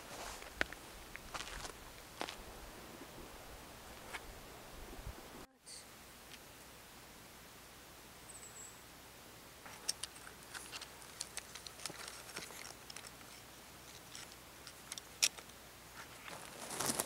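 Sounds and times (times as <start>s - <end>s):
dense crunching: 0.0s - 2.6s, 16.0s - 17.0s
dry clicks and crackles: 9.7s - 17.0s.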